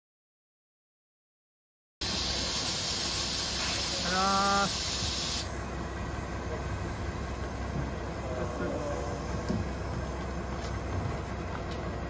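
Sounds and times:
loud hiss: 0:02.0 - 0:05.6
bus idling: 0:02.0 - 0:12.0.

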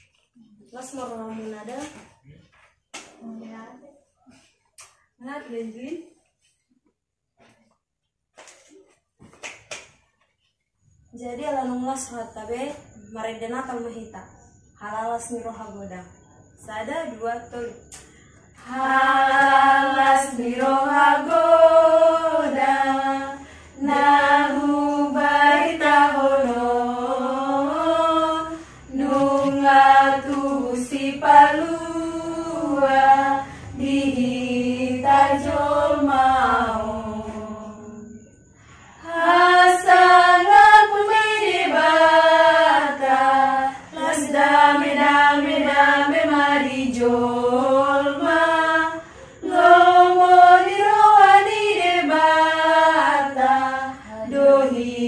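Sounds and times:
unaccompanied group singing: 0:17.2 - 0:55.0.

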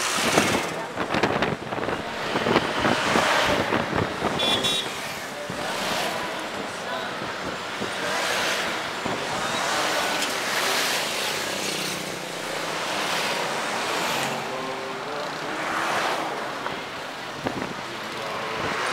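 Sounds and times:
wind rushing: 0:00.0 - 0:06.1
road traffic rushing past: 0:00.0 - 0:18.9.

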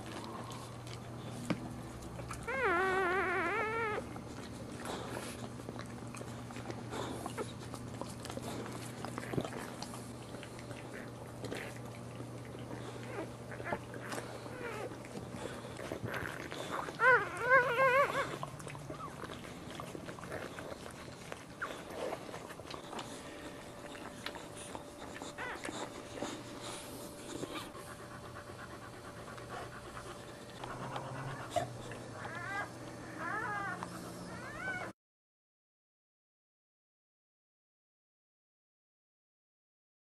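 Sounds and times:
dog panting: 0:00.0 - 0:34.9
puppies squealing: 0:02.3 - 0:04.1, 0:13.0 - 0:20.9, 0:21.6 - 0:34.9.

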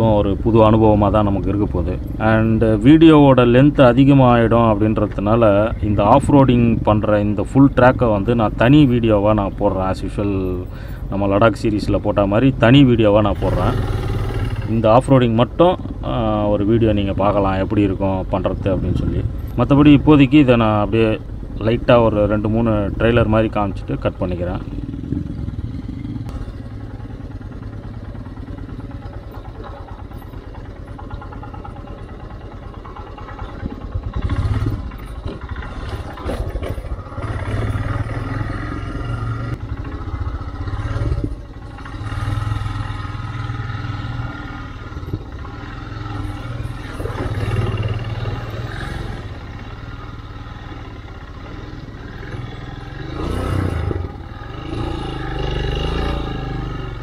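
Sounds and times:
motorcycle engine revving: 0:00.0 - 0:57.0
bike rattling on rocky ground: 0:29.3 - 0:37.6.

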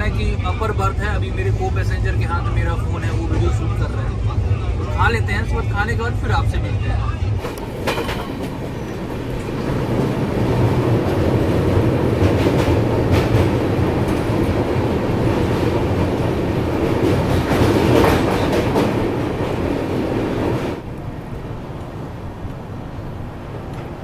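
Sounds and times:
train wheels rumbling on rails: 0:00.0 - 0:24.0
wheels clacking over rail joints: 0:07.4 - 0:20.8.

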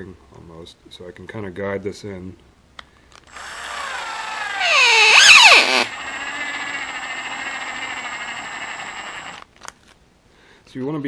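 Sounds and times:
cordless drill motor whine: 0:03.3 - 0:09.4.

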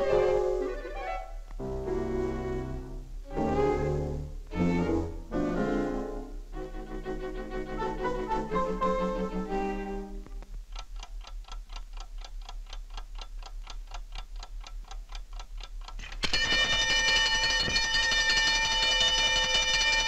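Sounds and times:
alarm clock ticking: 0:10.8 - 0:20.0
alarm bell ringing: 0:16.2 - 0:20.0.

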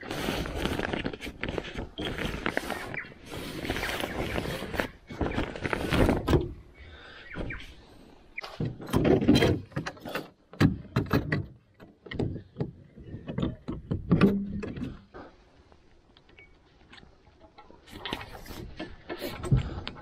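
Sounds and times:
sail cloth rustling: 0:00.0 - 0:06.6
boom fittings knocking: 0:08.6 - 0:15.0.

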